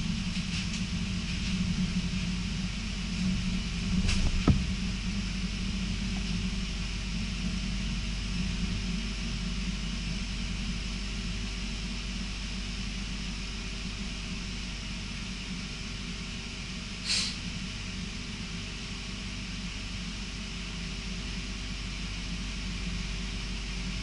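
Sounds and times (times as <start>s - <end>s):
train rumbling: 0.0s - 9.1s
sharp knock: 4.2s - 4.7s
wheels hissing on rail: 16.9s - 17.9s.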